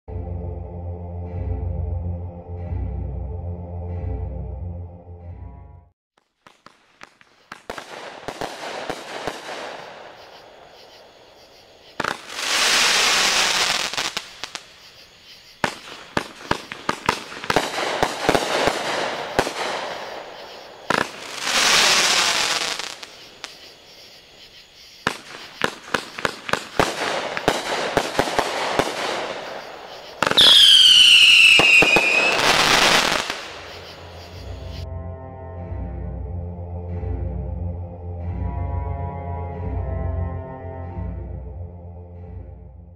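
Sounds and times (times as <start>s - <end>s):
firework crackling: 6.2s - 11.0s, 11.8s - 24.1s, 25.0s - 34.8s
firework launch and burst reports: 6.4s - 10.5s, 25.0s - 34.8s
falling firework whistle: 25.0s - 34.8s.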